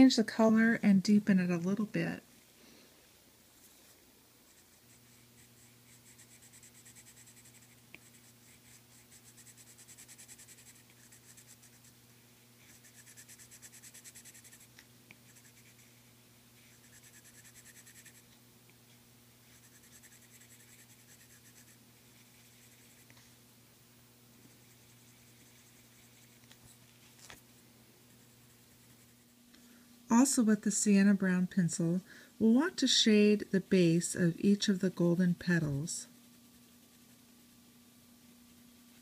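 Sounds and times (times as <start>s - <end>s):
pencil scratching: 4.5s - 12.0s, 12.6s - 16.0s, 16.6s - 18.2s, 19.4s - 23.2s, 24.5s - 26.8s, 28.1s - 29.4s.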